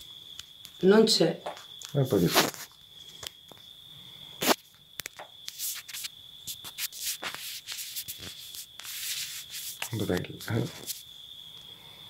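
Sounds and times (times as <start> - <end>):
light scuffs and clicks: 1.5 - 3.3, 5.4 - 11.1.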